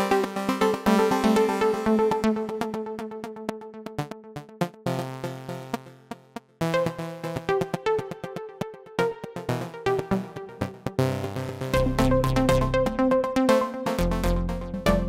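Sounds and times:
electronic music with drum machine: 9.5 - 15.0.

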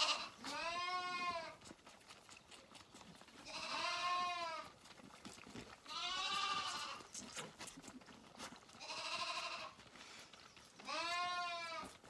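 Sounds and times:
lambs bleating: 0.0 - 1.6, 3.4 - 4.7, 5.8 - 7.2, 8.8 - 9.8, 10.8 - 12.0.

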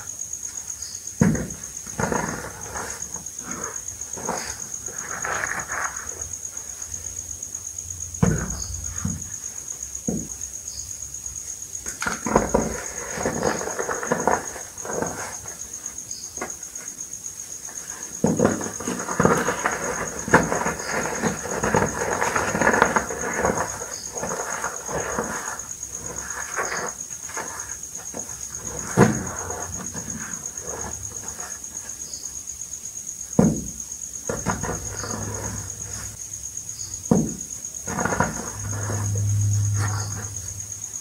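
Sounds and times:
chalk crunching and crackling: 1.8 - 6.8, 17.6 - 32.0
soft thuds of chalk lumps: 11.8 - 32.1.

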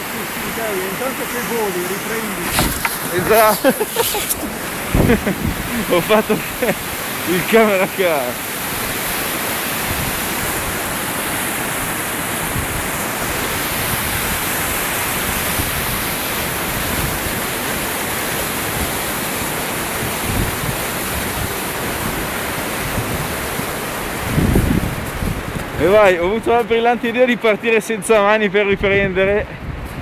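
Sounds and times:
river rapids roaring: 0.0 - 26.0.

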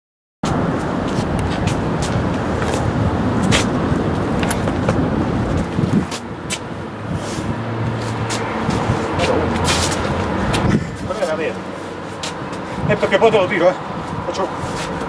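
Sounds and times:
traffic rumble: 0.4 - 15.0
vehicle engine running: 8.3 - 12.0.

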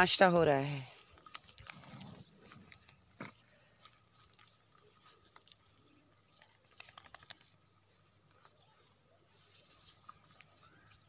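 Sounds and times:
animals eating food clicks: 1.0 - 3.0, 3.8 - 8.5.

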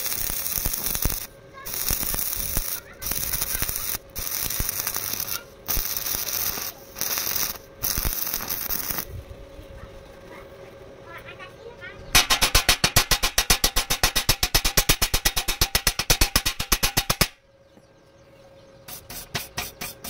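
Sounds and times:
welding arc crackling and hissing: 0.0 - 10.2, 12.2 - 17.4.

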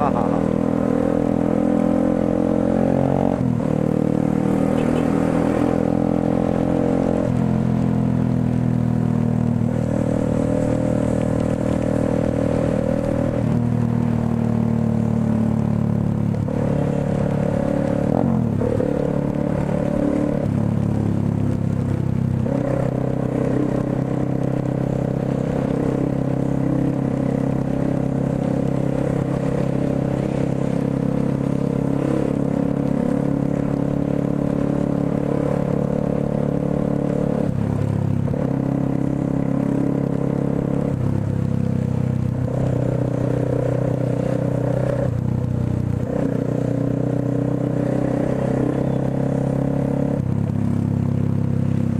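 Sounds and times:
motorcycle engine shifting gears: 0.0 - 51.9
wind and wet road hiss: 9.7 - 14.4.

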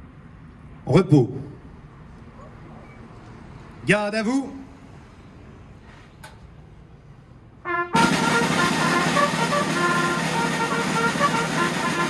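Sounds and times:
horns blasting together: 7.7 - 12.0.

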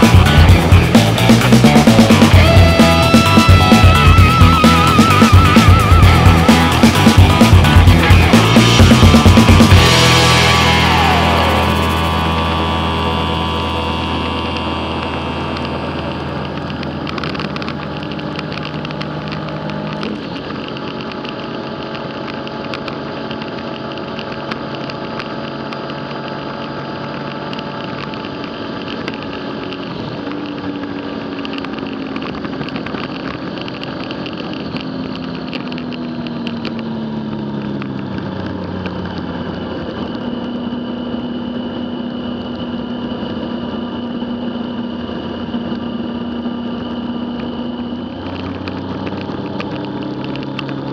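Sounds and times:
motorcycle engine running: 0.0 - 50.9
wind and road noise: 0.0 - 50.9.

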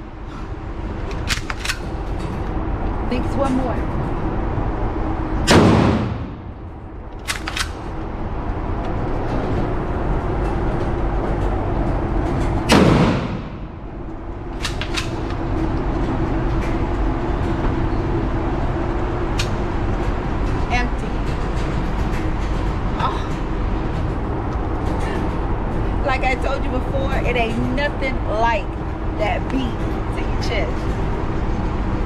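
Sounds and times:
shotgun blasts echoing indoors: 5.4 - 8.0, 12.7 - 14.0, 14.6 - 15.5.

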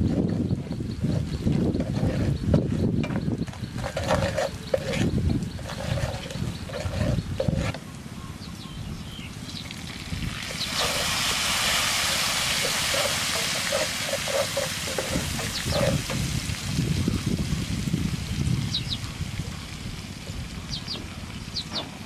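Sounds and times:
food sizzling in hot oil: 9.6 - 19.3
wooden spatula tapping and scraping pan: 12.6 - 16.2.

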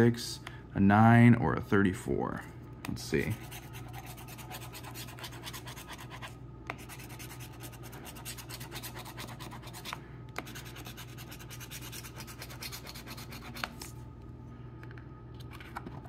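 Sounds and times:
coin scratching a lottery ticket: 3.2 - 13.8.

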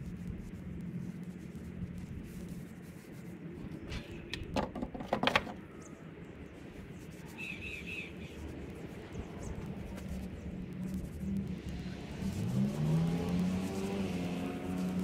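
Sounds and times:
walking sticks knocking wooden fence: 3.9 - 5.6.

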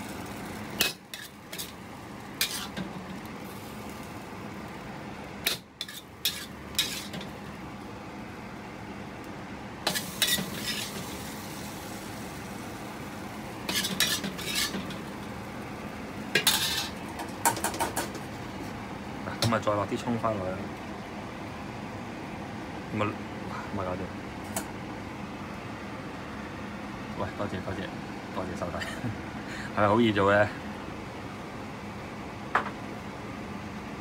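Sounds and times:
spatula scraping a wok: 0.8 - 3.1, 5.4 - 7.3, 9.9 - 11.3, 13.6 - 15.0, 16.4 - 17.0.

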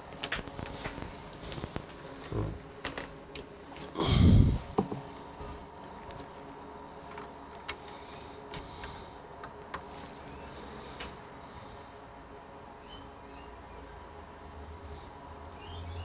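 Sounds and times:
faint steady hum: 0.0 - 16.0
high electronic beep: 5.4 - 5.7.

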